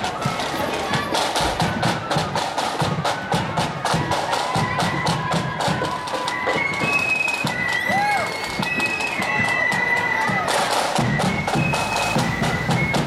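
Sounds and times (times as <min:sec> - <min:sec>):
marching band playing: 0:00.0 - 0:13.0
side drums beating: 0:00.0 - 0:13.0
high held melody: 0:10.7 - 0:13.0.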